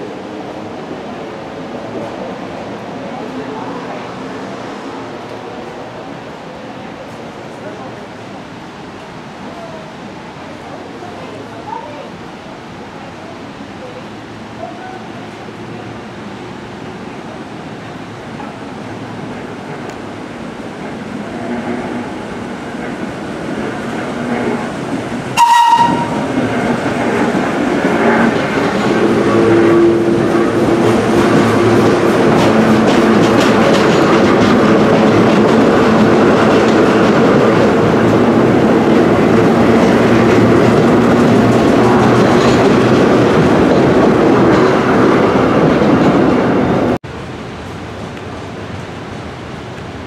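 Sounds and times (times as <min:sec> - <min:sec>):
train wheels rumbling on rails: 0:00.0 - 0:50.0
subway train horn blast: 0:25.3 - 0:26.7, 0:28.0 - 0:32.8.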